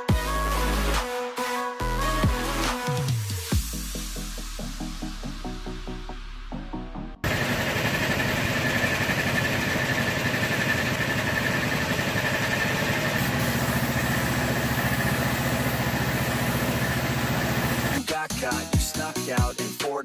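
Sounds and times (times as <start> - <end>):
air compressor running: 7.2 - 18.0.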